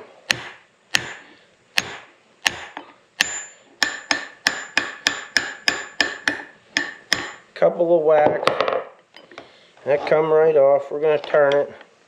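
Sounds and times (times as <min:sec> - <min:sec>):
hammer striking metal: 0:00.3 - 0:07.5
high metallic ring: 0:03.2 - 0:04.8.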